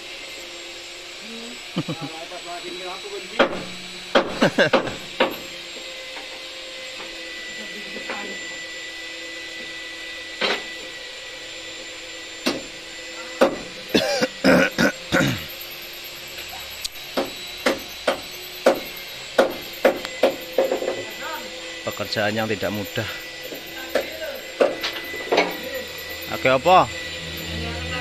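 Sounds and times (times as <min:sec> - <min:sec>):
hammer striking metal: 0:17.2 - 0:21.1.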